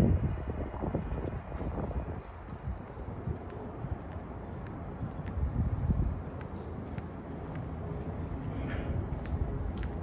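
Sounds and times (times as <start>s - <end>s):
wind rumbling on microphone: 0.0s - 10.0s
footsteps on brick pavement: 0.6s - 10.0s.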